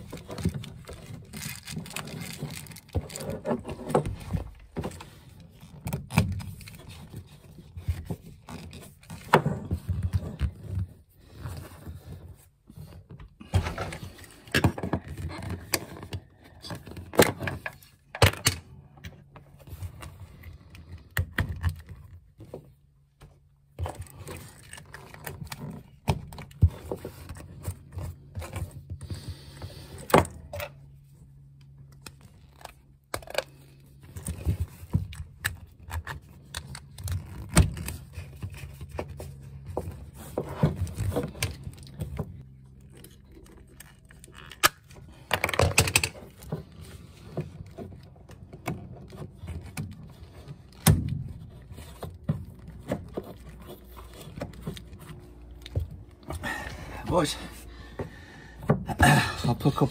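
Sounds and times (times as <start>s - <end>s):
plastic parts clicking and rattling: 0.0s - 12.1s, 31.9s - 56.4s
low steady hum: 0.0s - 59.9s.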